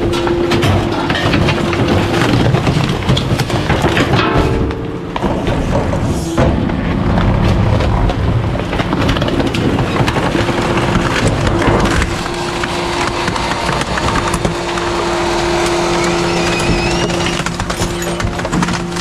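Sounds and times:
hydraulic packer crushing trash: 0.0s - 19.0s
truck engine rumble: 0.0s - 19.0s
steady hydraulic whine: 4.0s - 19.0s.

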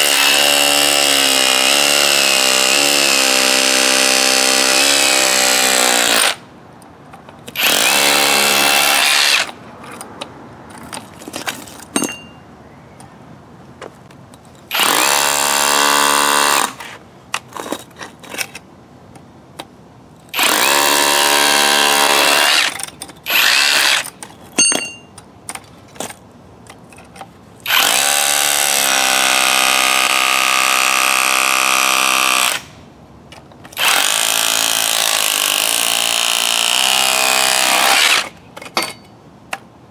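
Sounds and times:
hammer drill into brick: 0.0s - 6.4s, 7.6s - 9.6s, 14.7s - 17.0s, 20.4s - 25.0s, 27.6s - 32.8s, 33.7s - 38.9s.

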